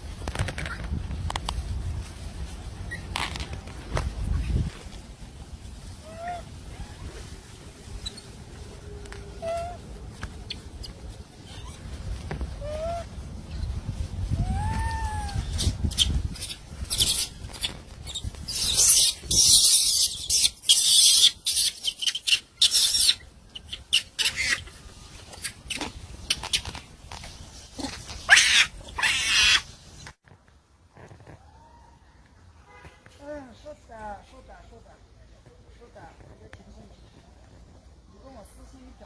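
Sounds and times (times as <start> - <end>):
monkey rising and falling call: 5.9 - 11.9, 12.6 - 13.6, 14.4 - 26.8, 27.7 - 29.7
monkey screaming: 6.0 - 7.0, 9.4 - 9.8, 12.6 - 13.1, 14.4 - 24.7, 27.8 - 29.7.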